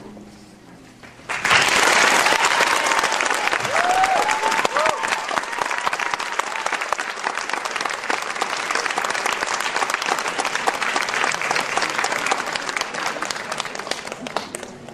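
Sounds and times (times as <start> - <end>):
crowd applauding: 1.2 - 14.9.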